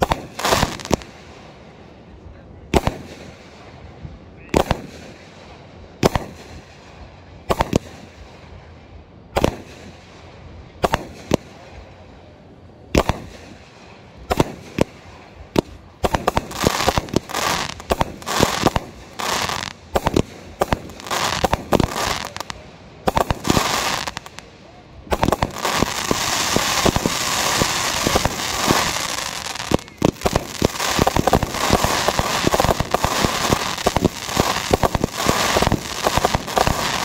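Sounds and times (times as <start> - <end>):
fireworks bangs: 0.0 - 1.7, 2.7 - 12.0, 12.9 - 37.0
fireworks crackling: 0.0 - 2.0, 2.6 - 12.1, 12.9 - 37.0.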